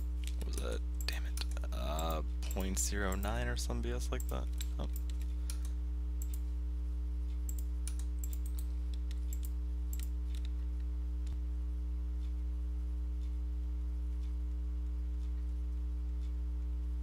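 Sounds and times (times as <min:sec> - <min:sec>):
low electrical hum: 0:00.0 - 0:17.0
keyboard and mouse clicking: 0:07.5 - 0:10.6.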